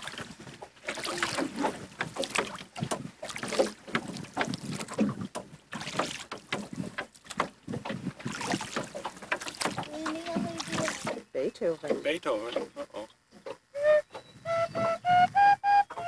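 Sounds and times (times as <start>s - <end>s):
oars splashing in water: 0.0s - 14.3s
oars knocking on boat: 0.0s - 15.0s
wind buffeting microphone: 13.8s - 16.0s.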